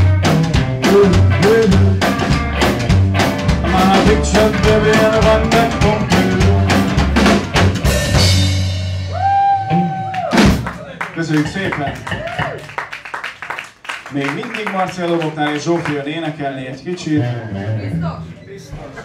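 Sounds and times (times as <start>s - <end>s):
electric guitar lead: 0.0s - 10.0s
upright bass: 0.0s - 12.6s, 17.1s - 19.0s
drum kit beat: 0.0s - 13.8s.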